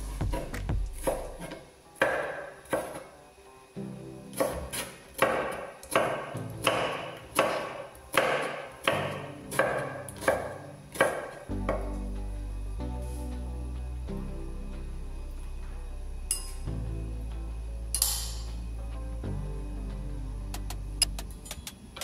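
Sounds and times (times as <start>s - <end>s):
soft background music: 0.0s - 22.0s
knife chopping on wooden board: 0.2s - 3.0s, 4.4s - 11.9s.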